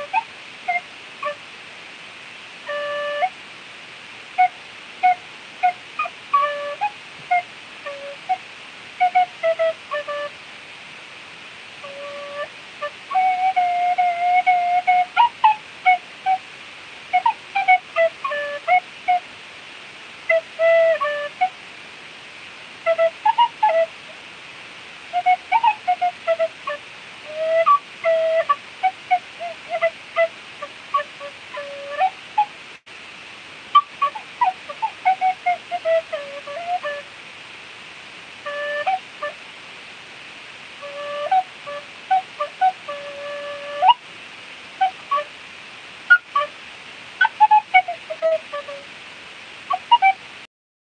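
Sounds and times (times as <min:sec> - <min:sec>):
tin whistle melody: 0:00.0 - 0:01.4, 0:02.6 - 0:03.4, 0:04.3 - 0:08.4, 0:09.0 - 0:10.4, 0:11.8 - 0:16.4, 0:17.1 - 0:19.2, 0:20.2 - 0:21.6, 0:22.8 - 0:24.0, 0:25.1 - 0:32.5, 0:33.7 - 0:37.1, 0:38.4 - 0:39.4, 0:40.8 - 0:44.0, 0:44.8 - 0:45.3, 0:46.1 - 0:46.6, 0:47.2 - 0:48.9, 0:49.7 - 0:50.2
steady background hiss: 0:00.0 - 0:50.5.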